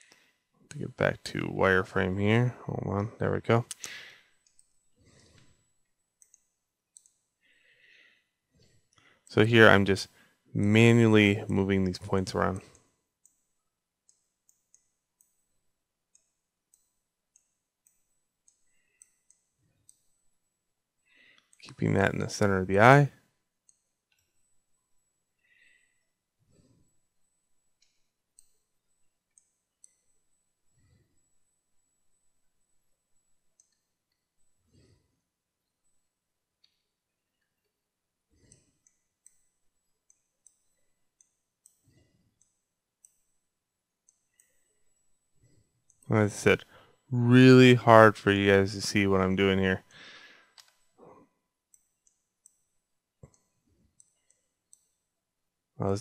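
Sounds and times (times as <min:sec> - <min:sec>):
faint computer mouse clicks: 0:06.2 - 0:07.2, 0:53.2 - 0:55.0.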